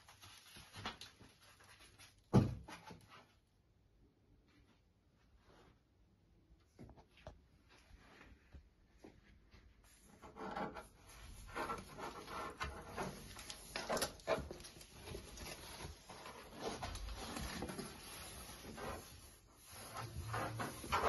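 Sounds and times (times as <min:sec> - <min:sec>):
plastic film rustling: 0:00.0 - 0:02.3, 0:11.4 - 0:21.0.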